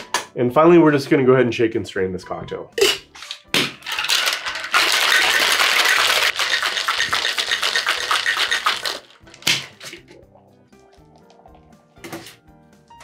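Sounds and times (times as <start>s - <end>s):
ice rattling in metal shaker: 3.8s - 10.0s.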